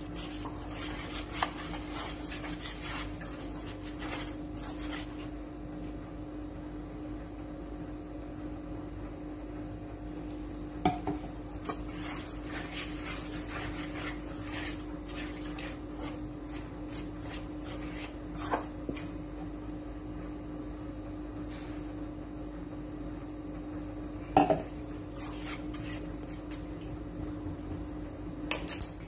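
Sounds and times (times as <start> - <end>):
chopsticks scraping in metal bowl: 0.0 - 5.3, 11.5 - 19.1
steady low hum: 0.0 - 29.0.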